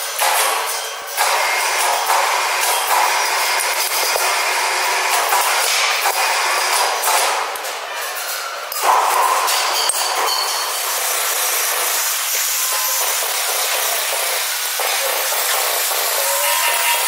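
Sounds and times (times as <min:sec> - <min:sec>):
workshop din hiss: 0:08.9 - 0:17.0.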